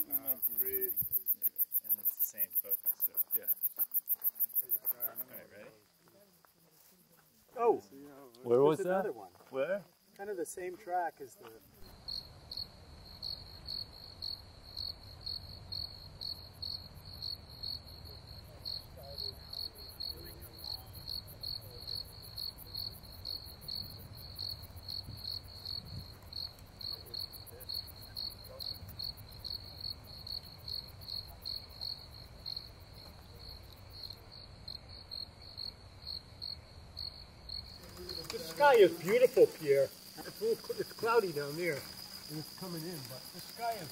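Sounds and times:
crickets chirping: 0.0s - 43.9s
high insect trill: 0.0s - 43.9s.

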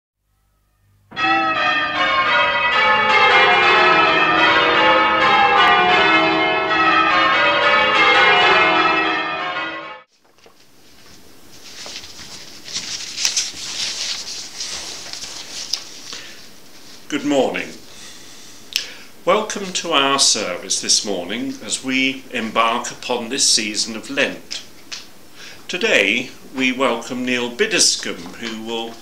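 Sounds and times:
church bells ringing: 1.0s - 10.1s, 25.7s - 29.0s
paper rustling: 10.1s - 17.1s.

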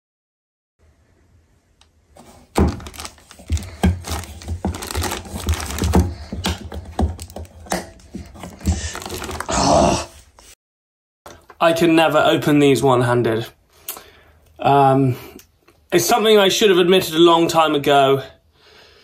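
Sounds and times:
crinkling plastic sheeting: 2.2s - 9.7s.

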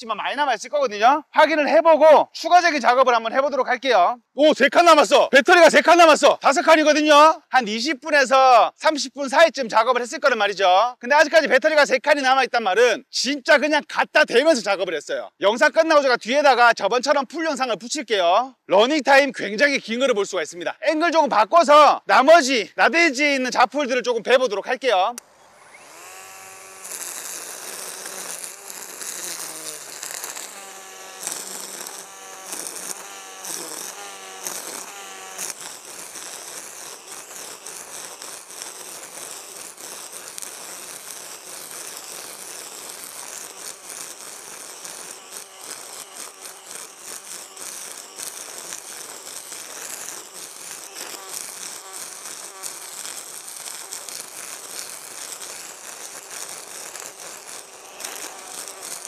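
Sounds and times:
line trimmer cutting grass: 25.2s - 59.0s.

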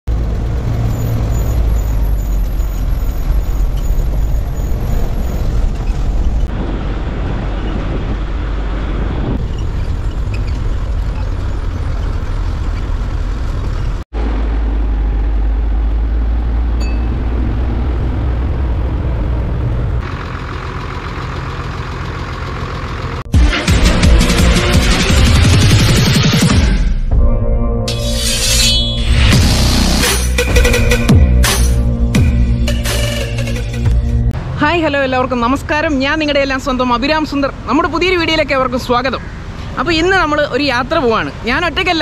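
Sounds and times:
road noise: 0.0s - 26.8s, 27.9s - 42.0s
bus engine running: 0.1s - 26.6s.

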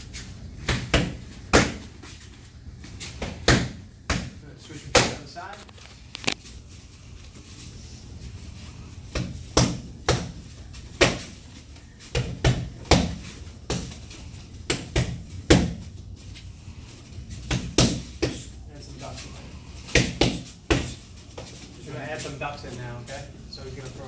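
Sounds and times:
punches slapping focus mitts: 0.6s - 1.9s, 3.1s - 5.2s, 9.1s - 10.4s, 12.1s - 14.0s, 14.6s - 15.8s, 17.4s - 18.5s, 19.8s - 21.0s.

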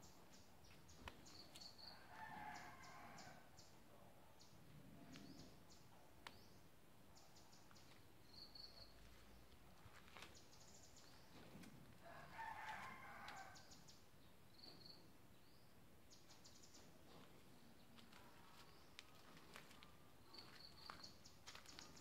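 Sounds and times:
faint rooster crowing: 1.9s - 3.7s, 12.0s - 13.9s.

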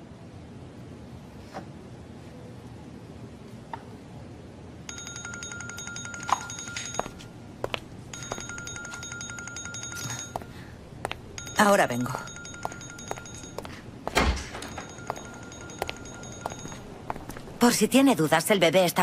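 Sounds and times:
mobile phone ringing: 4.9s - 17.6s.

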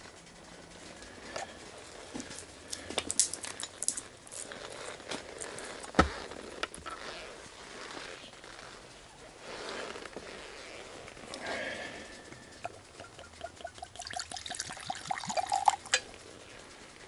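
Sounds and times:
bottle and glass clinking: 12.6s - 16.1s.

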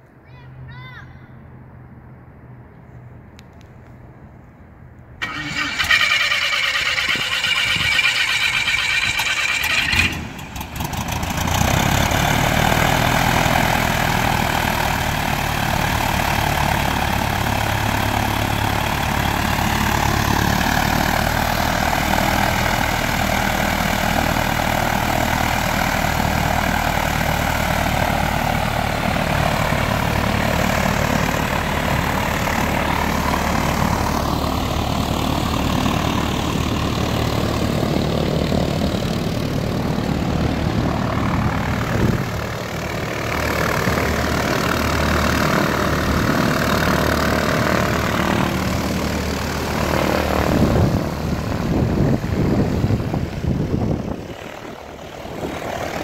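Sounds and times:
aircraft piston engine idling: 5.2s - 56.0s.

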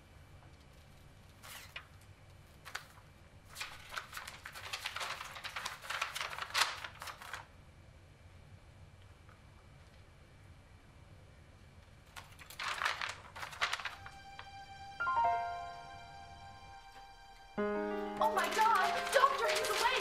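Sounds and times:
paper rustling and crinkling: 0.8s - 7.6s, 12.1s - 14.5s, 18.2s - 20.0s.

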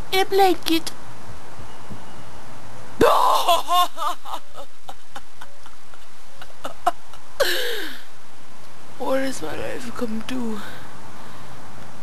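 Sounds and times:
young woman laughing: 3.2s - 8.0s.

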